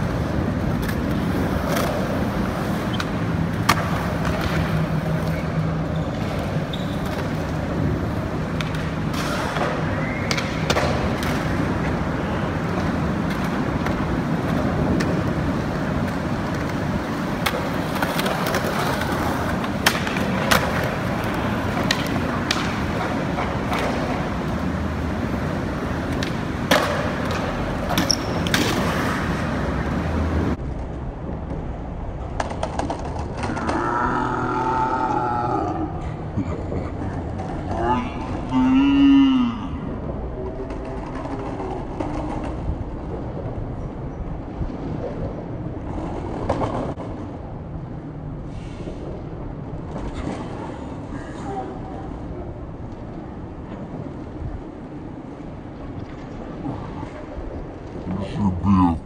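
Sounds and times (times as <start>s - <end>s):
skateboard clacking on ground: 0.0s - 34.0s, 40.0s - 47.6s
skateboard wheels rolling on concrete: 0.0s - 59.0s.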